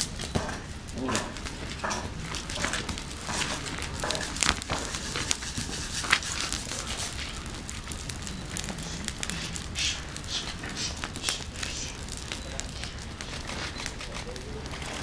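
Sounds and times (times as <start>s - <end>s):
fire crackling and popping: 0.0s - 15.0s.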